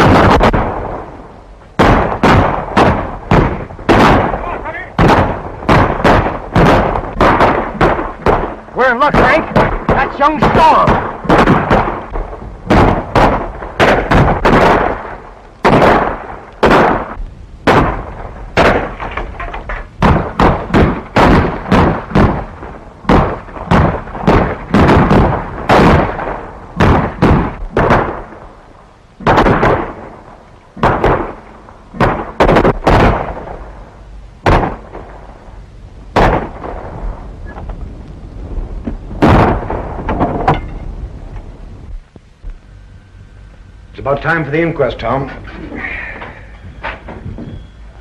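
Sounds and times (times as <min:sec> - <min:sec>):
echoing gunshots: 0:00.0 - 0:19.4, 0:20.0 - 0:35.5, 0:36.1 - 0:37.3, 0:39.2 - 0:40.5.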